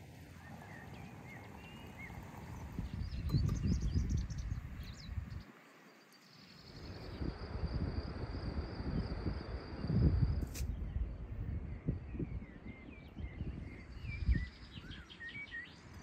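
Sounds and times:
wind rumbling on microphone: 0.0 - 5.6, 6.4 - 16.0
bird chirps: 0.3 - 7.3, 10.6 - 16.0.

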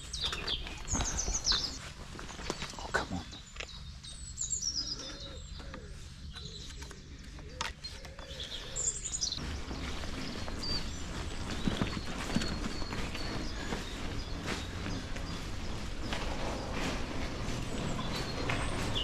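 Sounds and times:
songbirds singing: 0.0 - 19.0
low rumble of wind: 8.2 - 19.0.

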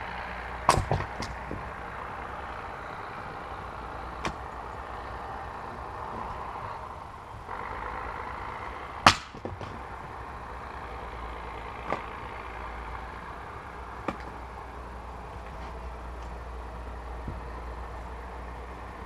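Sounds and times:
axe splitting log: 0.6 - 2.0, 3.7 - 6.5, 9.0 - 10.3, 11.6 - 12.3, 13.8 - 14.6
wood pieces clattering: 0.7 - 1.7, 14.0 - 14.4.

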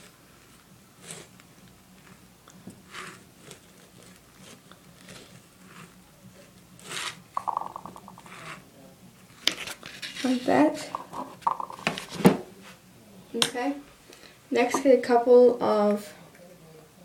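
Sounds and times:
stick scraping shaving cream: 0.0 - 7.2.

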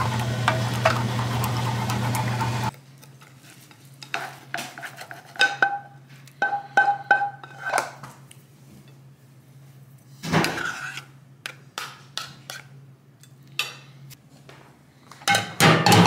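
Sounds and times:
eggs sizzling in pan: 0.0 - 2.7.

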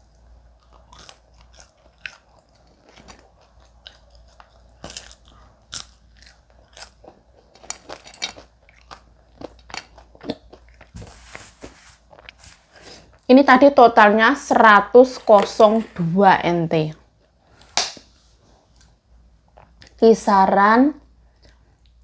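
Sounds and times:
person chewing crisp fries: 0.0 - 11.0, 12.0 - 13.2.

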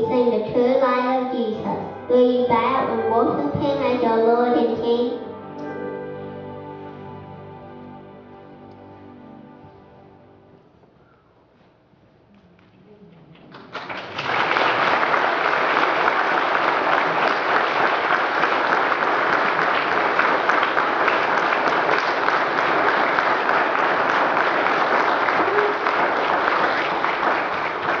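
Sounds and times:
audience clapping: 12.6 - 28.0.

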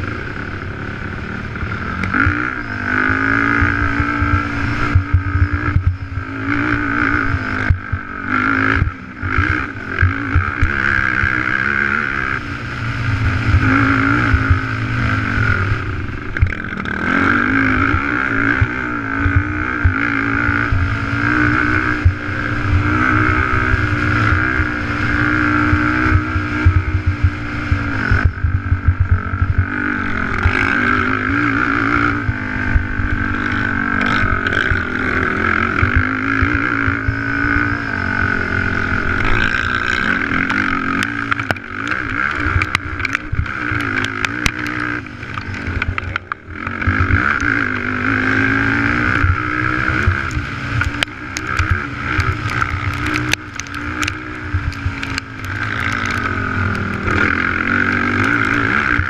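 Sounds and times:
quad engine at race pace: 0.0 - 59.0
sharp clicks and knocks: 39.4 - 47.6, 50.0 - 57.4.

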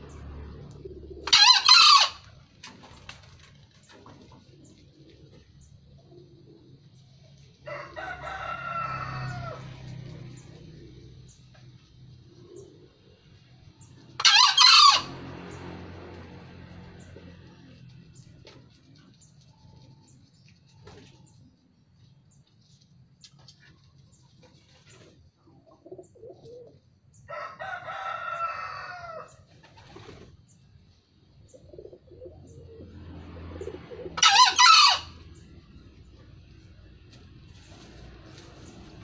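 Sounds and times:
junglefowl crowing: 1.2 - 2.3, 7.6 - 9.8, 14.2 - 15.4, 27.3 - 29.4, 34.0 - 35.4.

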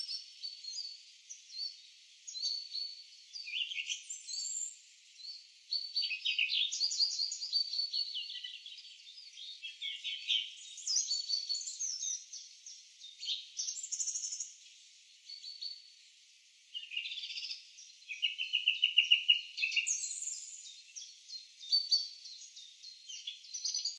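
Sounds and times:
small birds chirping and trilling: 0.0 - 23.9.

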